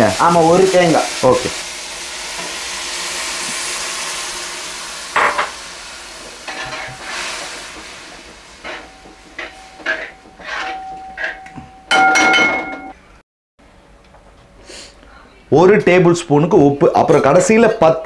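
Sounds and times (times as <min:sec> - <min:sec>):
liquid sizzling in hot pot: 0:00.0 - 0:11.4
ladle scraping metal pot: 0:06.5 - 0:07.9, 0:08.6 - 0:11.5.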